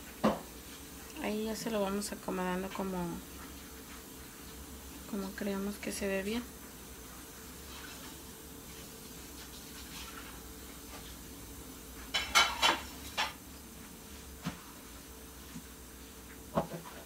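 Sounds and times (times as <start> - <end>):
kitchenware clinking: 12.1 - 13.4.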